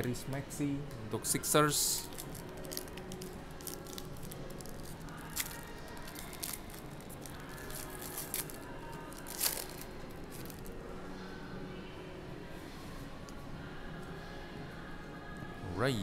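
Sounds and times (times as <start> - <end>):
foil wrapper crinkling and tearing: 2.0 - 10.6.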